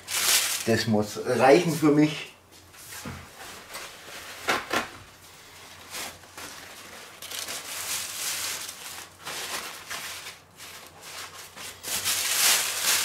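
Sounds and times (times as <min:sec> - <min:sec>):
paper crumpling: 0:00.0 - 0:00.9, 0:05.4 - 0:13.0
paper and plastic wrapping rustling: 0:00.0 - 0:02.2, 0:02.8 - 0:13.0.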